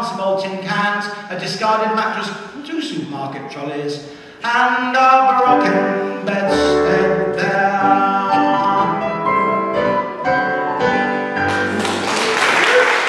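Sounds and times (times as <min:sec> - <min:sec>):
piano playing held chords: 0:05.2 - 0:12.3.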